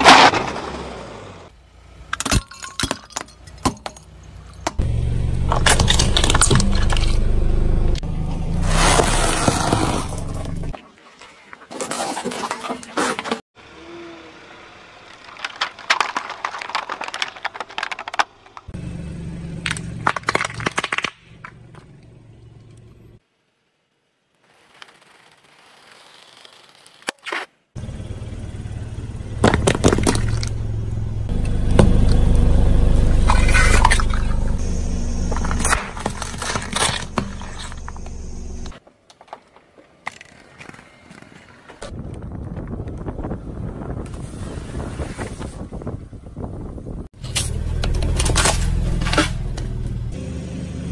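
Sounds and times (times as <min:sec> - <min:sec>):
low steady rumble: 0:04.2 - 0:08.8, 0:27.8 - 0:38.7
low engine hum: 0:04.2 - 0:10.7, 0:18.7 - 0:20.1, 0:27.8 - 0:38.7, 0:47.2 - 0:50.9
tyre rolling on asphalt: 0:08.6 - 0:10.7
tyre crushing plastic cups: 0:15.2 - 0:18.7, 0:19.7 - 0:21.2.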